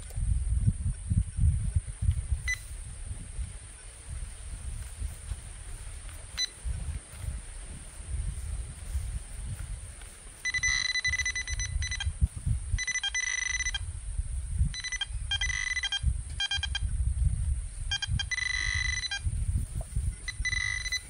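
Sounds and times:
soil and grass rustling: 0.0 - 21.0
metal detector pinpointer beeping: 2.4 - 2.9, 6.3 - 6.8, 10.4 - 13.9, 14.6 - 16.9, 17.9 - 19.3, 20.1 - 21.0.

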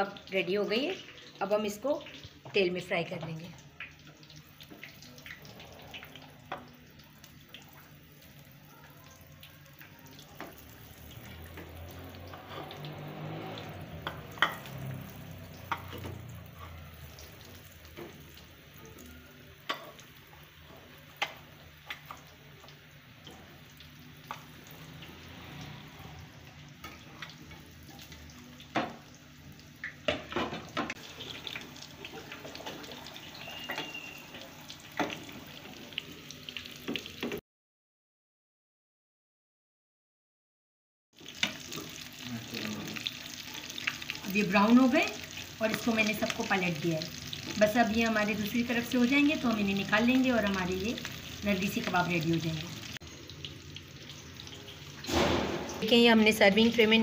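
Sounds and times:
frying oil sizzling and popping: 0.0 - 37.4, 41.1 - 57.0.

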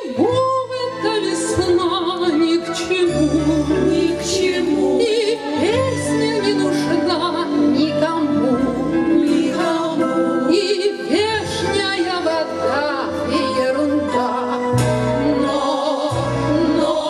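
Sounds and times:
instrumental accompaniment: 0.1 - 17.0
women's choir singing with vibrato: 3.6 - 7.8, 8.5 - 17.0.

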